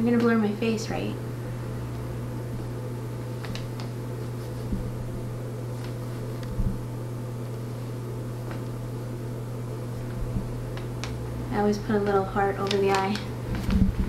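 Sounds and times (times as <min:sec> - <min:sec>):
low room hum: 0:00.0 - 0:14.0
paper rustling: 0:03.4 - 0:04.9.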